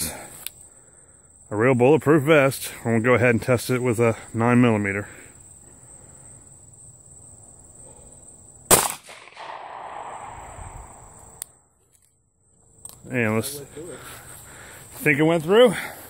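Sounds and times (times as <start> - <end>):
pistol shot with echo: 8.7 - 11.4.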